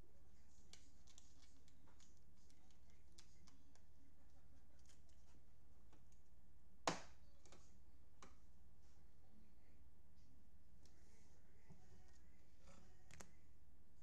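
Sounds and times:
plastic card sleeve handling: 0.5s - 3.8s.

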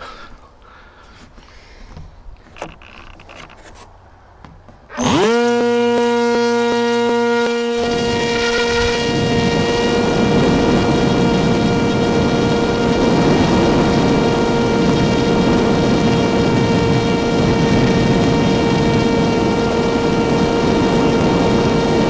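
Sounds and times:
model plane motor droning: 4.9s - 22.0s.

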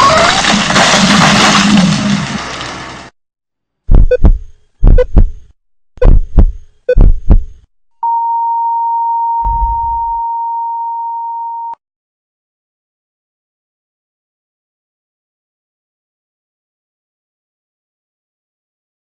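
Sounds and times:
heart monitor flatline beep: 3.9s - 5.3s, 6.0s - 7.4s, 8.0s - 11.8s
heartbeat double thumps: 3.9s - 7.7s, 9.4s - 10.2s.

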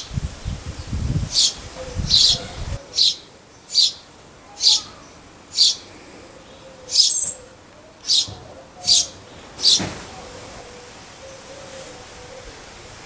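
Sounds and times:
small bird chirping: 0.0s - 5.9s, 6.5s - 9.8s.

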